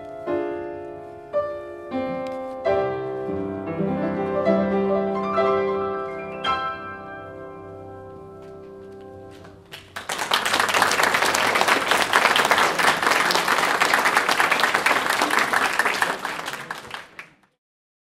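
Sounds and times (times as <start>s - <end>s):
congregation applauding: 9.6s - 17.6s.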